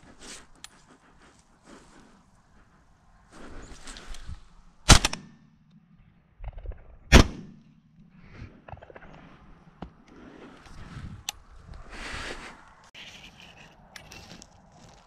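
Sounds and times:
leaves and brush rustling: 0.0 - 4.9, 10.2 - 15.0
shotgun shots: 4.9 - 5.3, 7.1 - 7.6.

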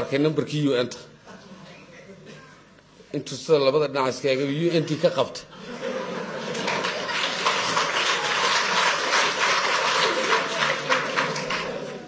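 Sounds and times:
crowd laughter: 4.8 - 12.0
audience applauding: 6.2 - 12.0.

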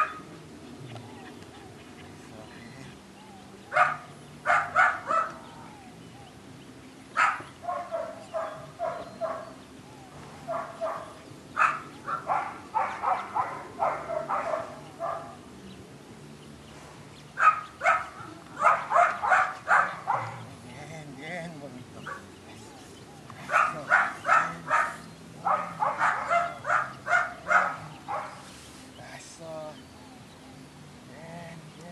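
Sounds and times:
puppy barking: 0.0 - 0.3, 3.7 - 5.5, 7.2 - 9.6, 10.4 - 15.4, 17.4 - 20.6, 22.0 - 22.3, 23.4 - 28.4.

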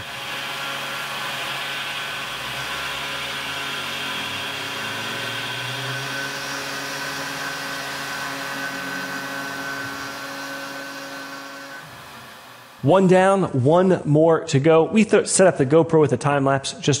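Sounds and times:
hiss of metal cutting: 0.0 - 12.9
milling spindle whine: 0.0 - 13.2.

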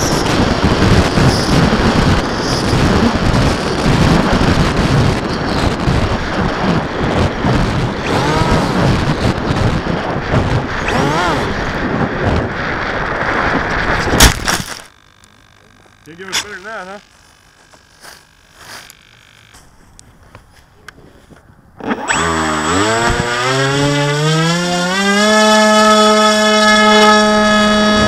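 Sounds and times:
wind buffeting microphone: 0.0 - 14.5
model aircraft motor and propeller: 0.0 - 19.7, 21.8 - 28.0.

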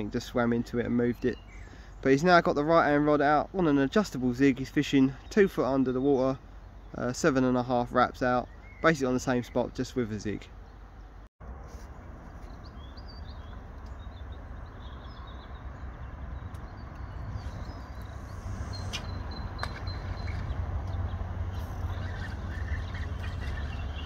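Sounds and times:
small birds chirping: 0.0 - 24.0
wind rumbling on microphone: 12.1 - 24.0.

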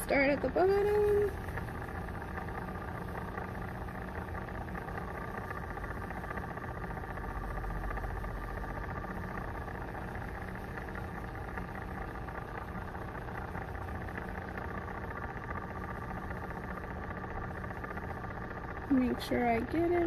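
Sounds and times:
electric motor humming: 0.0 - 20.0.

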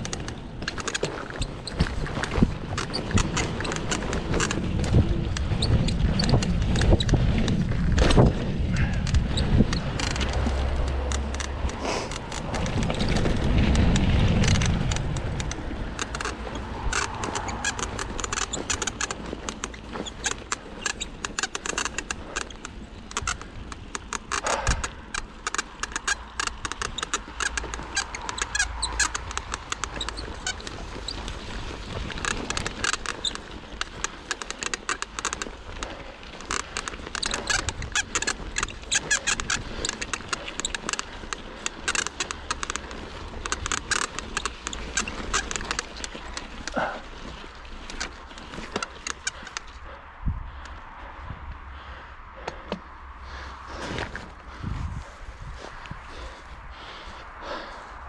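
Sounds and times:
bike squeaks: 0.0 - 50.0
bike clicking and rattling: 0.0 - 58.0
bike tyres on dirt trail: 0.0 - 58.0
heavy low rumble: 4.2 - 19.0.

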